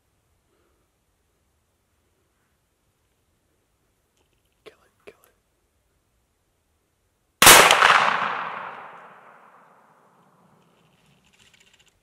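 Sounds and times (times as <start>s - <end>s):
rifle shot with echo: 7.4s - 10.0s.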